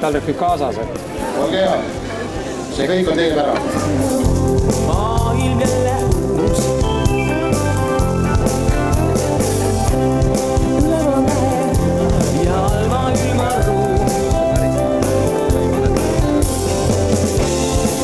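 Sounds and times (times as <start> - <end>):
person singing: 3.6 - 8.5, 10.4 - 16.5
steady drum beat: 3.6 - 18.0.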